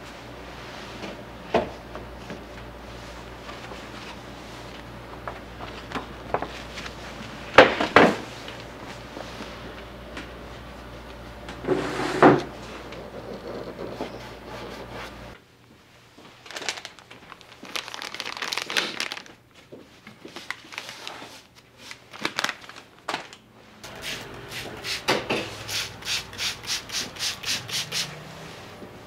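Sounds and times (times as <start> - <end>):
paper rustling and scraping: 20.1 - 23.3
wet tissue rubbing on paper: 23.9 - 28.2.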